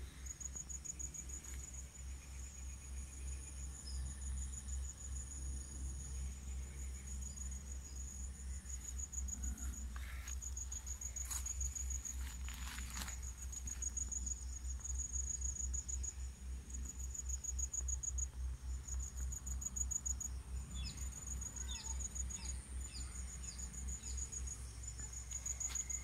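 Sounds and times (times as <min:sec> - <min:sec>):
insect chirring trill: 0:00.0 - 0:26.0.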